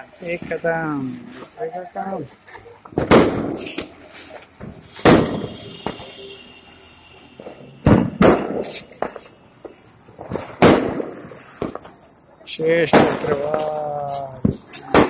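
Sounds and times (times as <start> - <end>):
firecrackers banging: 0.0 - 15.0
spinning firework hissing: 2.3 - 12.2
thin firework whistle: 4.8 - 9.8.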